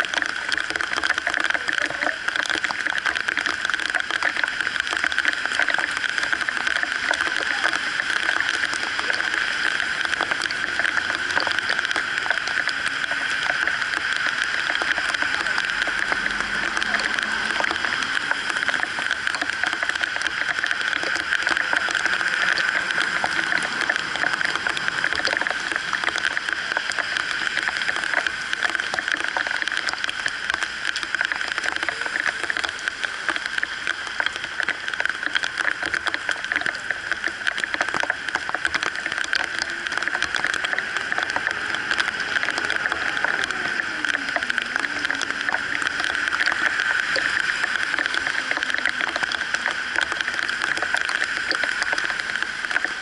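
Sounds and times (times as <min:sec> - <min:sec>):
heavy rain on flooded road: 0:00.0 - 0:53.0
traffic passing through water: 0:00.0 - 0:53.0.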